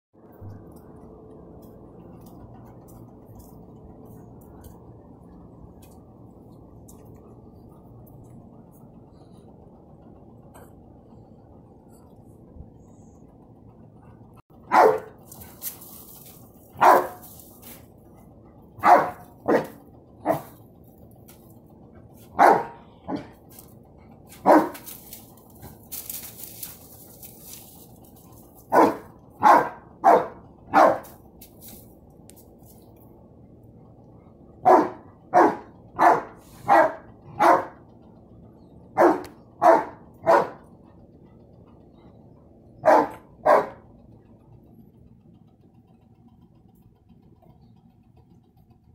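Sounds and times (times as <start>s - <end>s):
low background hum: 0.2s - 48.9s
dog barking: 14.7s - 15.2s, 16.8s - 17.3s, 18.8s - 20.6s, 22.3s - 23.3s, 24.4s - 24.9s, 28.7s - 31.2s, 34.6s - 37.8s, 39.0s - 40.7s, 42.8s - 43.8s.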